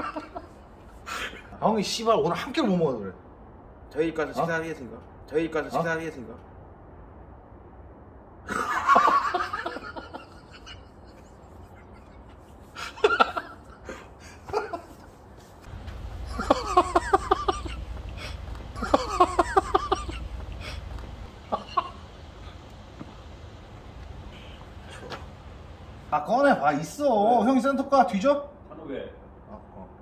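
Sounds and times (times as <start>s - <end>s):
person laughing: 0.0s - 0.5s, 8.5s - 15.0s, 16.2s - 22.1s
low rumble: 15.6s - 26.2s.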